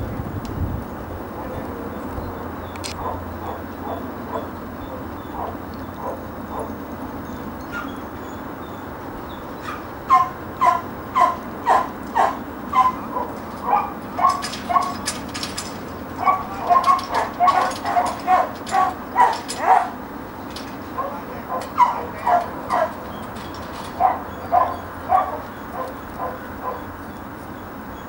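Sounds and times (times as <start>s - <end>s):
dog barking: 3.0s - 6.8s, 9.6s - 15.1s, 16.2s - 20.0s, 21.0s - 23.1s, 23.8s - 26.9s.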